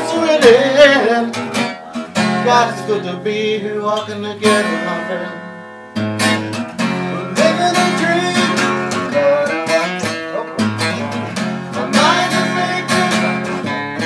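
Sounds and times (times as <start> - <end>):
acoustic guitar strumming: 0.0 - 14.0.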